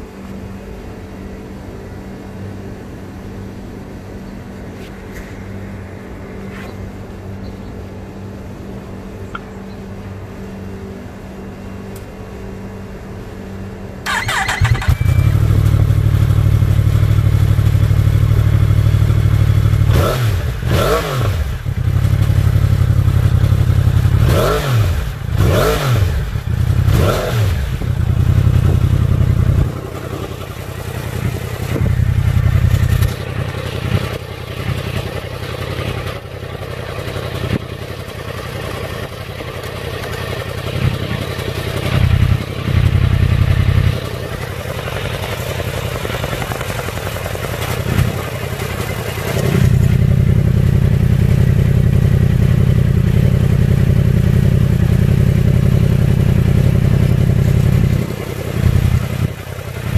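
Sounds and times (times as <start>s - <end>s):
low steady hum: 0.0s - 20.7s
motorcycle engine idling and revving: 0.0s - 59.9s
starter whine: 14.0s - 20.7s.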